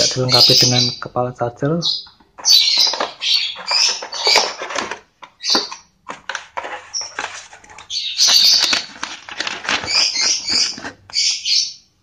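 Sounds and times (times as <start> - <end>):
paper rustling and crackling: 2.3 - 11.2.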